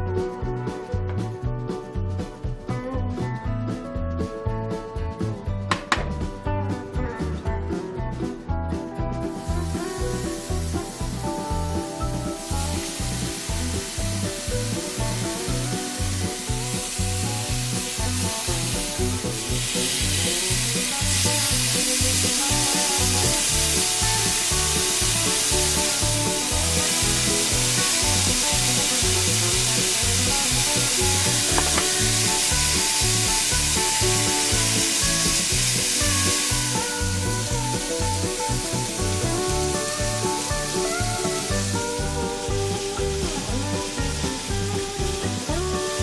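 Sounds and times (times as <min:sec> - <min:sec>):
background music with steady beat: 0:00.0 - 0:46.0
meat sizzling in frying pan: 0:09.2 - 0:46.0.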